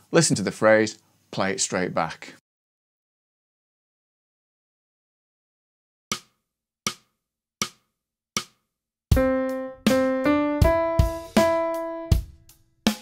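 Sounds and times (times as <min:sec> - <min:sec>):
drum beat: 0:08.4 - 0:13.0
keyboard piano notes: 0:09.1 - 0:12.4.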